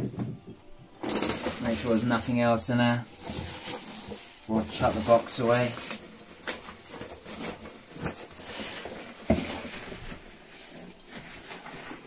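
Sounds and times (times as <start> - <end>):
cardboard box rustling and scraping: 3.0 - 12.0.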